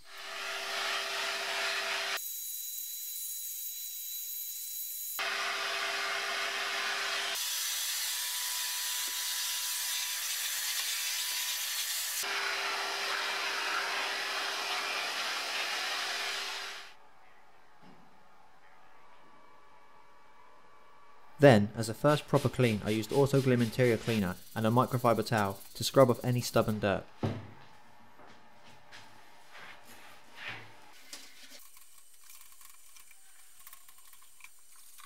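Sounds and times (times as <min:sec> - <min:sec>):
vacuum cleaner running: 0:05.2 - 0:09.4, 0:12.2 - 0:16.9.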